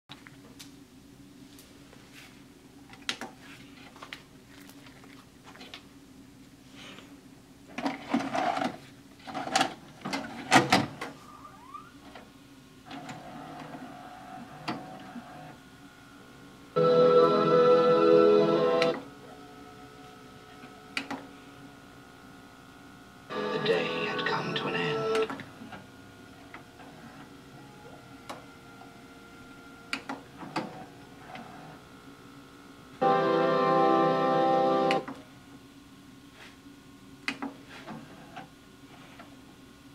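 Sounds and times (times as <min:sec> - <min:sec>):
tape transport whirr: 0:07.7 - 0:35.6.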